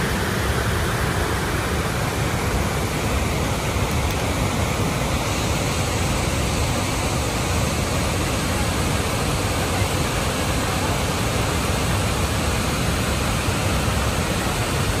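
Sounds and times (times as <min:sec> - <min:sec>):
waterfall and rapids rushing: 0:00.0 - 0:15.0.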